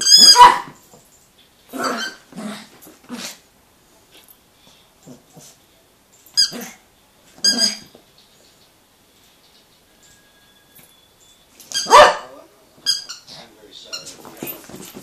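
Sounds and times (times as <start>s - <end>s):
small dog growling and barking: 1.7s - 3.5s, 5.0s - 5.6s, 6.4s - 6.8s.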